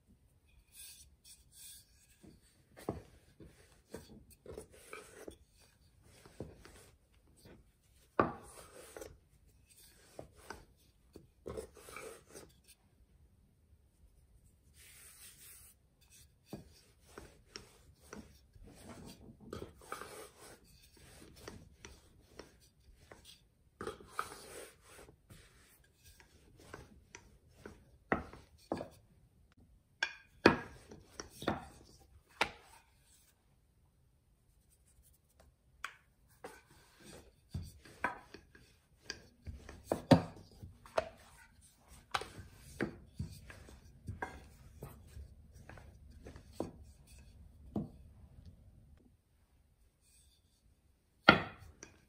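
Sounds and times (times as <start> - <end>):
rolling pin rubbing strokes: 0.6 - 12.8, 14.6 - 28.9, 36.3 - 47.5.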